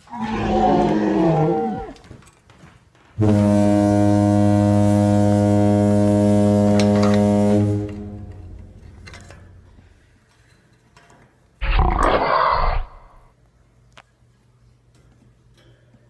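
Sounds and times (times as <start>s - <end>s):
loud roar sound effect: 0.1s - 1.9s, 11.6s - 13.3s
low horn-like blast: 3.2s - 9.8s.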